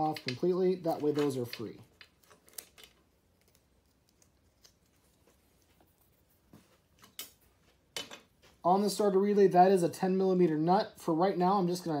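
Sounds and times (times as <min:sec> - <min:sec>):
wires and plastic connectors clicking: 0:00.0 - 0:06.1, 0:06.9 - 0:07.4.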